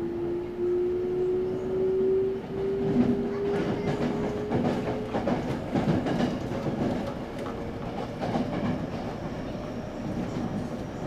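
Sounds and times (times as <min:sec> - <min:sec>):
train wheels rumbling on rails: 0:00.0 - 0:11.0
clacks over rail joints: 0:02.8 - 0:09.4.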